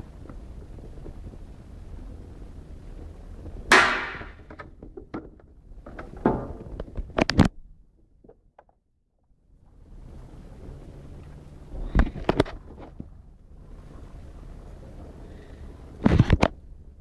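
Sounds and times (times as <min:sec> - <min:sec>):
loud plastic clatter: 0:03.7 - 0:07.5
camera handling rumble: 0:11.8 - 0:13.1, 0:16.0 - 0:16.6.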